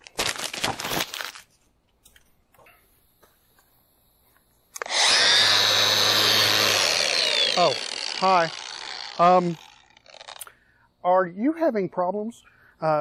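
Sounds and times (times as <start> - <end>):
paper crumpling: 0.0 - 1.6
power tool whining: 4.8 - 10.5.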